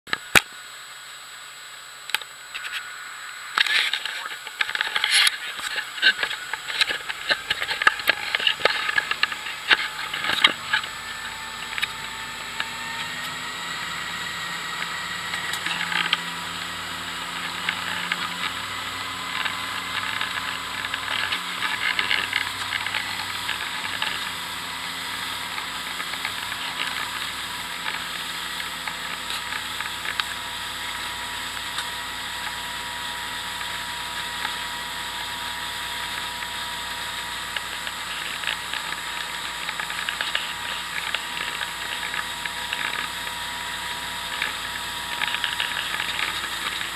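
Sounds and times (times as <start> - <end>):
motorboat engine: 0.1 - 46.9.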